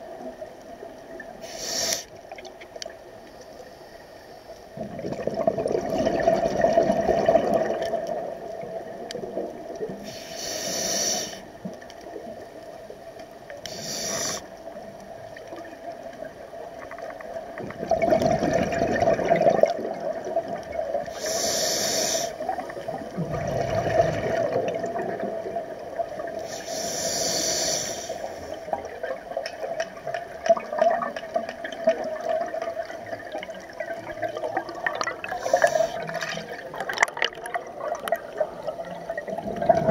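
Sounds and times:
regulator hissing inhalations: 1.4 - 2.2, 10.0 - 11.6, 13.7 - 14.6, 21.1 - 22.5, 26.4 - 28.8, 35.2 - 36.3
bubbling exhalations: 4.8 - 8.1, 17.6 - 21.4, 22.4 - 25.6, 34.4 - 39.9.

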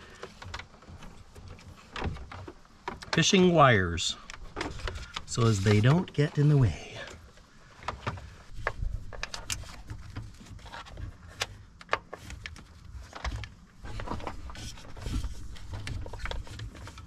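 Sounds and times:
rustling of hands with wiring: 0.0 - 17.0.

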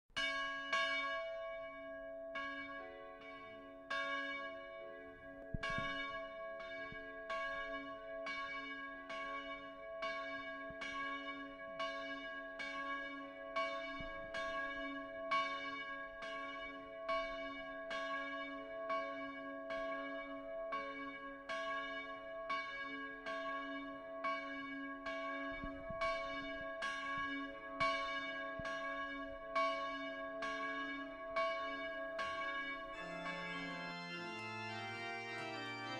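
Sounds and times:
church bells ringing: 0.2 - 35.9.

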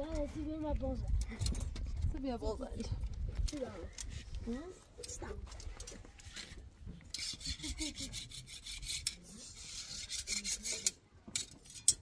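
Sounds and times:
rapid scraping strokes: 7.2 - 11.0.

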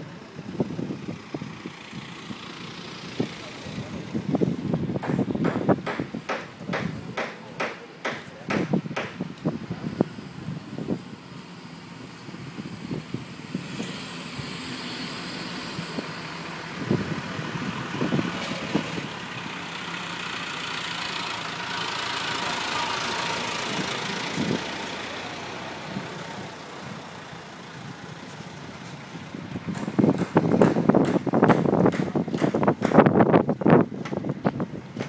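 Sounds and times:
short knocks: 5.0 - 9.2.

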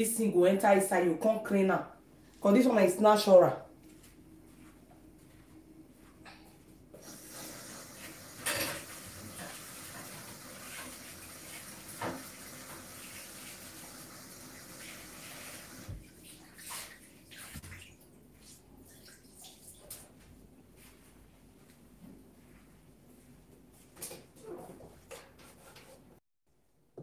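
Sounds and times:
kitchen tap running: 7.0 - 18.0.

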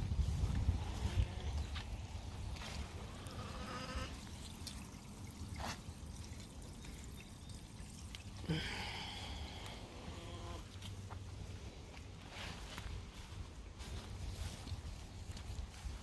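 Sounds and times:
fountain splashing into pond: 3.0 - 9.6.

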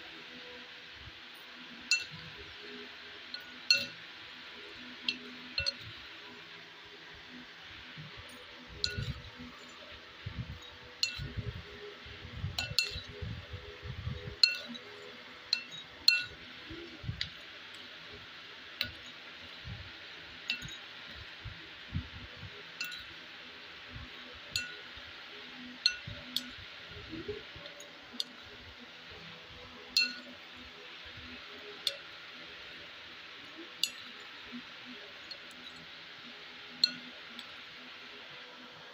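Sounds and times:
faint steady hiss: 0.0 - 38.9
clinks of ceramic bowls: 14.4 - 14.8, 22.8 - 23.1.

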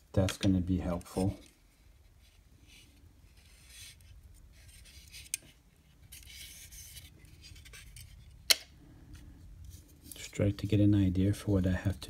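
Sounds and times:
light scraping and rubbing: 0.8 - 8.4.

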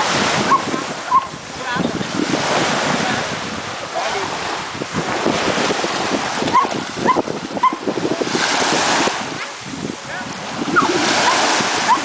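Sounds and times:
small waves washing ashore: 0.0 - 12.0
wind on microphone: 0.0 - 12.0
dog barking: 0.4 - 1.3, 6.5 - 7.8, 10.8 - 12.0.

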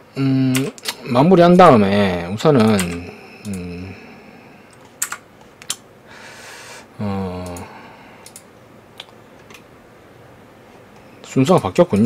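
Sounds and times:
keyboard and mouse clicks: 0.5 - 1.0, 2.6 - 3.6, 4.7 - 5.8, 7.4 - 9.7
low wordless vocal sounds: 2.6 - 4.8.

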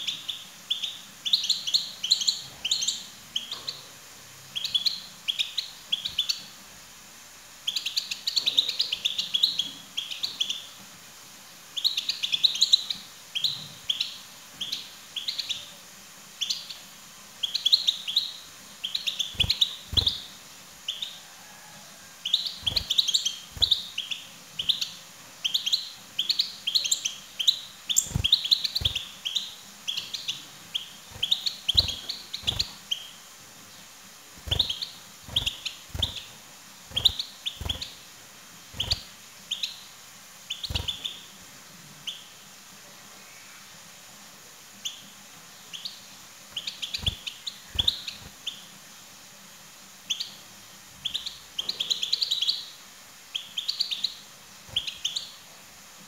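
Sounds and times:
goldfinch twittering: 18.9 - 20.3, 22.3 - 24.9, 25.5 - 33.1, 34.4 - 36.3, 36.9 - 38.0, 38.8 - 39.8, 40.5 - 41.2, 46.6 - 48.6.

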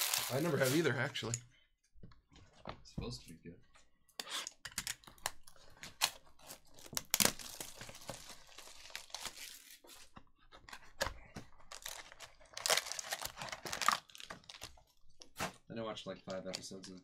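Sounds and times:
packaging rustling: 0.0 - 0.9, 5.8 - 10.1, 11.5 - 15.6
plastic wrap crinkling: 0.0 - 0.9, 5.8 - 10.0, 11.6 - 15.6
plastic wrap tearing: 0.0 - 0.9, 5.9 - 9.8, 11.7 - 15.6.

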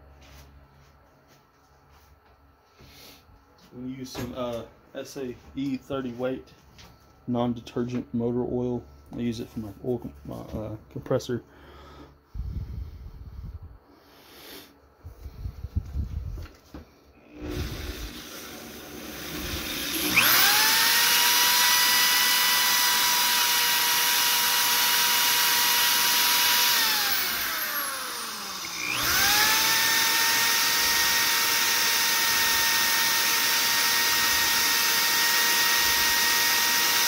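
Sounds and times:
power drill motor whining: 17.2 - 37.0.

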